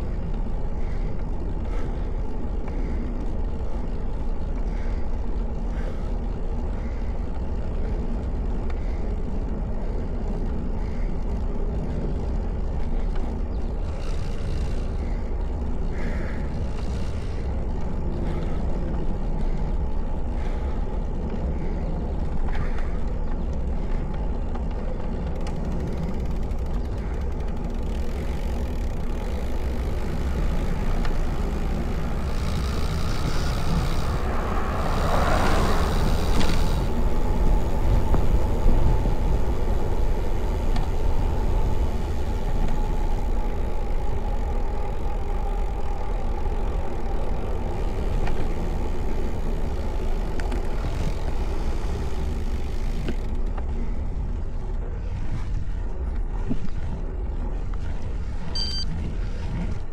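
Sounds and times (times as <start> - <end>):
bike tyres rolling on pavement: 0.0 - 59.9
wind rushing over microphone: 26.8 - 59.9.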